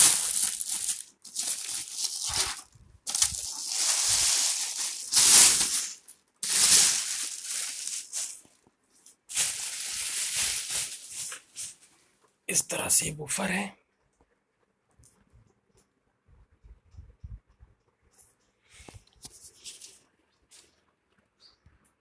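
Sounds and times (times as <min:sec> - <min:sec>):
plastic bag crinkling: 0:00.0 - 0:11.9.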